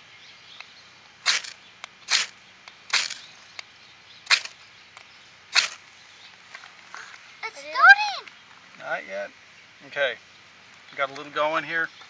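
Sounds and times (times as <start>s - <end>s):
flint rod scraping knife spine: 1.3s - 2.3s, 2.9s - 3.2s, 4.3s - 4.6s, 5.6s - 5.8s.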